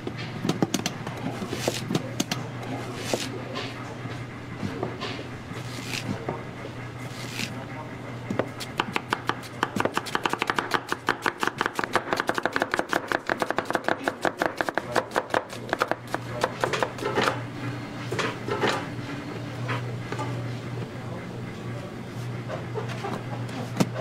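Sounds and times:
knife chopping on cutting board: 0:08.4 - 0:17.4.

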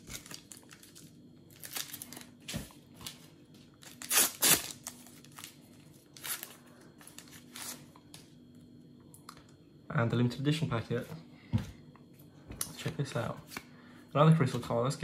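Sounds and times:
packet ripping: 0:00.0 - 0:02.3, 0:03.8 - 0:06.5
wrapper crinkling: 0:00.0 - 0:02.4, 0:03.8 - 0:07.8.

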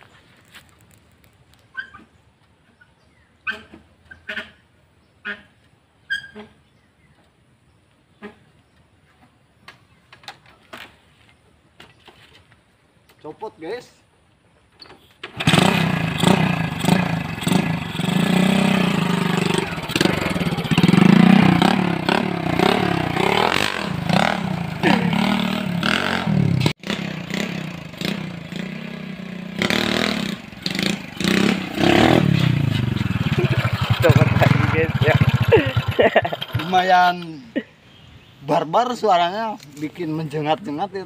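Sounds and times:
motorcycle engine revving: 0:15.3 - 0:37.0.

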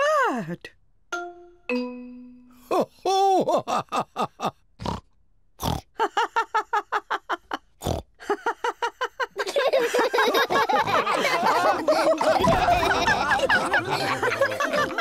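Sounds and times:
loud pig snorts: 0:04.8 - 0:05.0, 0:05.6 - 0:05.8, 0:07.8 - 0:08.0
cartoon pigs laughing: 0:06.0 - 0:15.0.

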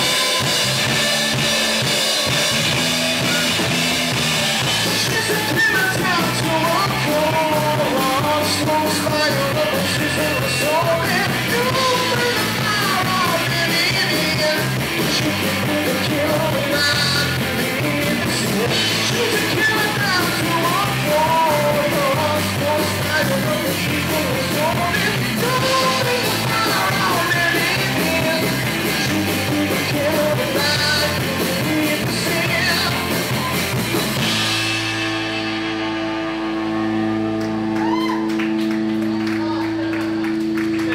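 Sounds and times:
live rock band playing: 0:00.0 - 0:40.9
man singing: 0:04.8 - 0:33.6.

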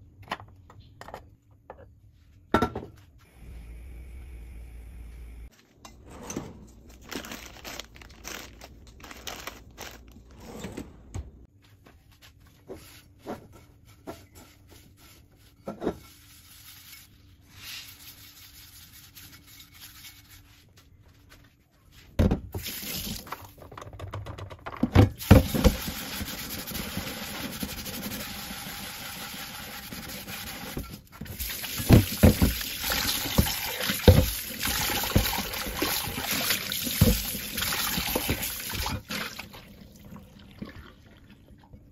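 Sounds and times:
cloth wiping pot: 0:13.8 - 0:20.8.

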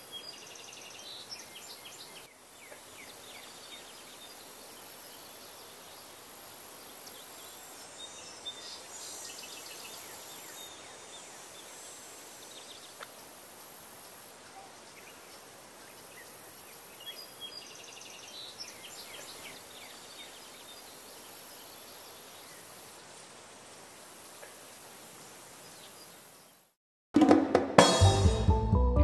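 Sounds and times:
faint background hiss: 0:00.0 - 0:26.8
music with drums: 0:27.2 - 0:29.0.

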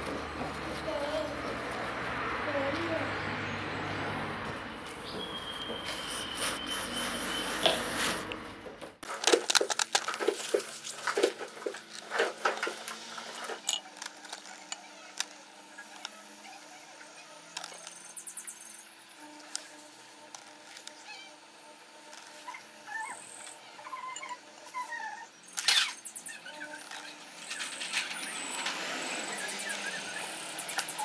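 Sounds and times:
small metal parts clinking: 0:11.8 - 0:15.3.

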